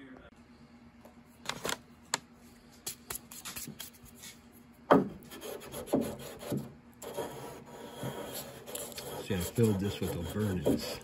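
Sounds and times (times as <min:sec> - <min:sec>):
knocks on wood: 0:04.9 - 0:05.2
rubbing and scraping on wood: 0:05.3 - 0:11.0.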